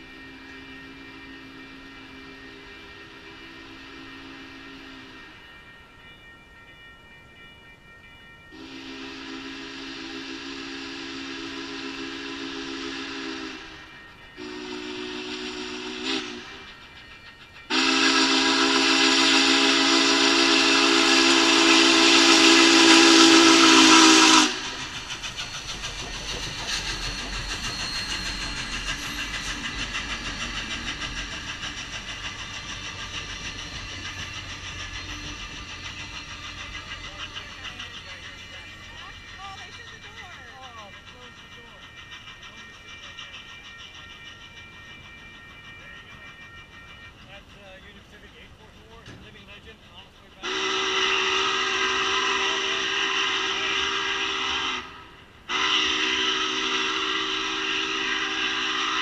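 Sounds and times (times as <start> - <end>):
steam whistle blasts: 0.0 - 5.4, 8.6 - 16.8, 17.7 - 37.9, 50.4 - 59.0
train rumbling past: 0.0 - 59.0
rhythmic wheel clatter: 24.5 - 50.5.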